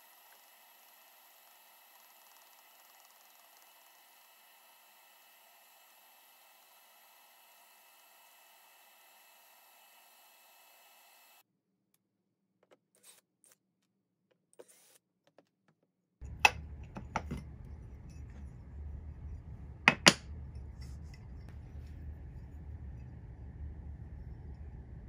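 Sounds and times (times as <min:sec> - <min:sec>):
low steady hum: 0:16.2 - 0:25.0.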